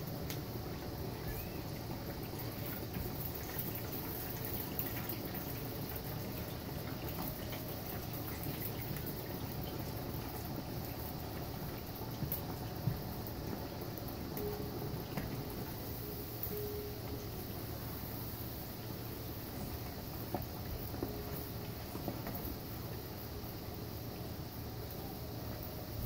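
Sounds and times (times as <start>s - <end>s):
hot oil sizzling in a pot: 0.0s - 26.0s.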